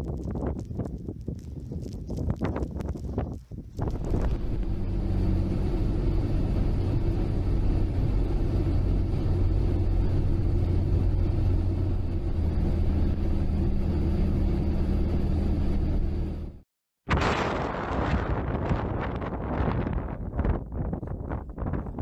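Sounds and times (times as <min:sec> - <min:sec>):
road and tyre noise: 0:00.0 - 0:16.6
car engine hum: 0:03.8 - 0:16.6.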